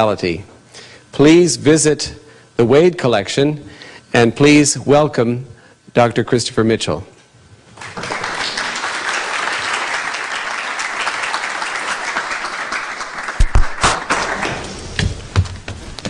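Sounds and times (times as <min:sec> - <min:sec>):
audience applauding: 0:07.8 - 0:14.8.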